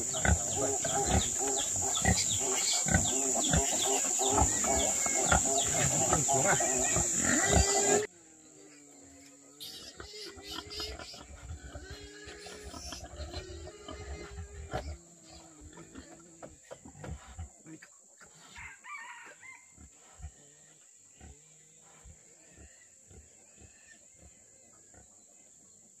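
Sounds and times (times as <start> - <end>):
chickens calling: 0.0 - 8.1, 9.6 - 16.2.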